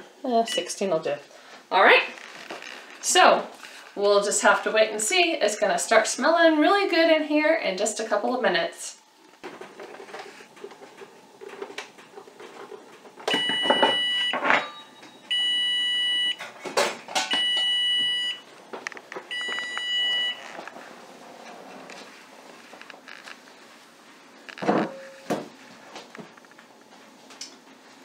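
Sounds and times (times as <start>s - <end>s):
oven timer beeps: 13.3s - 16.4s, 17.3s - 18.4s, 19.3s - 20.4s.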